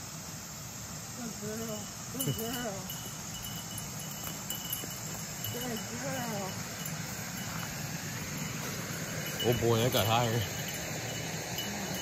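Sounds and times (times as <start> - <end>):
insects chirping trill: 0.0 - 12.0
footsteps through tall weeds: 3.9 - 10.8.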